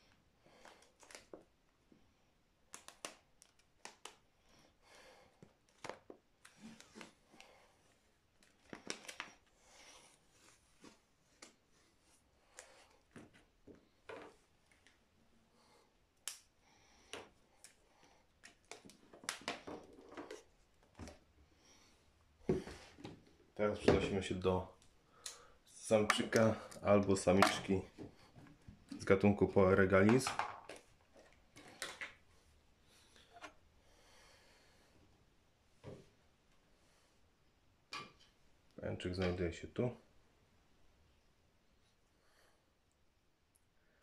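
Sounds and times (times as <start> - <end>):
tape crackling and ripping: 2.7 - 4.2.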